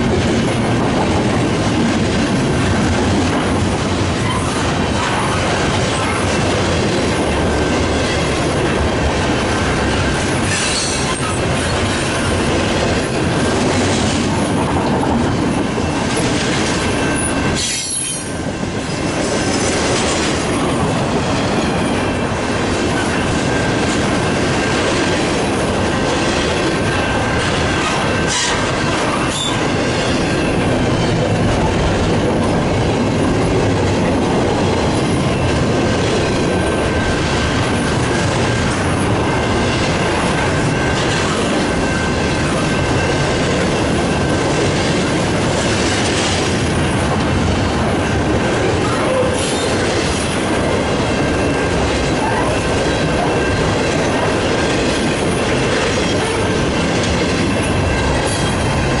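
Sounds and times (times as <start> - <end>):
sharp clacks of train wheels: 0.0 - 59.0
train rumbling and rattling: 0.0 - 59.0
wheels squealing on rail: 3.5 - 6.4, 9.5 - 15.0, 15.8 - 22.2, 22.9 - 31.3, 48.6 - 50.4, 51.0 - 59.0.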